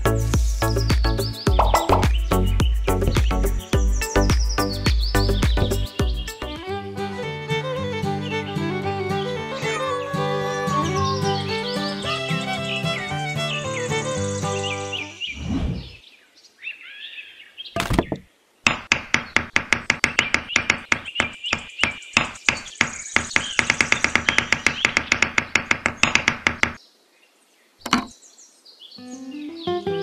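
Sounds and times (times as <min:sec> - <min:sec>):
hammer tapping wooden dowel: 0:18.7 - 0:26.8.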